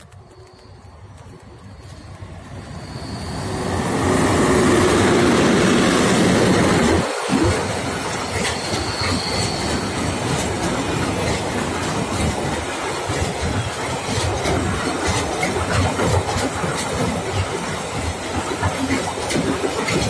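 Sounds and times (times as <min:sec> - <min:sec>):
train wheels clattering on rails: 0:00.0 - 0:20.0
high wheel squeal: 0:00.1 - 0:11.9.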